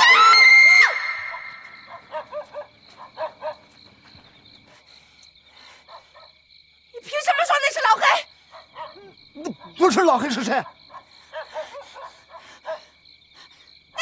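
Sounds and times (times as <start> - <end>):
crickets chirring: 0.0 - 14.0
dog barking: 1.8 - 3.7, 8.5 - 9.8, 10.6 - 12.9.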